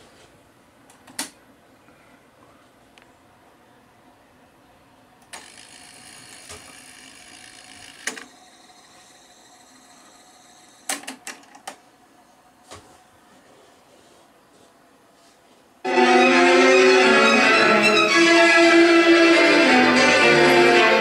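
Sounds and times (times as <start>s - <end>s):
faint steady hum: 0.0s - 15.9s
tape whirring fast-winding: 5.4s - 10.9s.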